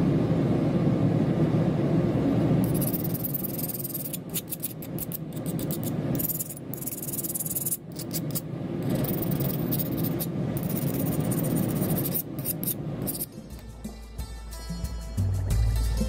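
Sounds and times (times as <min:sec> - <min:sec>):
low background rumble: 0:00.0 - 0:14.2
file scraping steel blade: 0:02.6 - 0:13.4.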